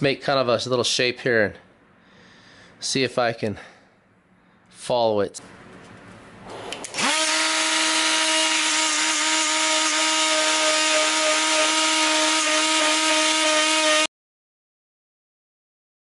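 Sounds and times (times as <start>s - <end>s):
die grinder high whine: 6.9s - 14.1s
rasp bit cutting into wood: 6.9s - 14.1s.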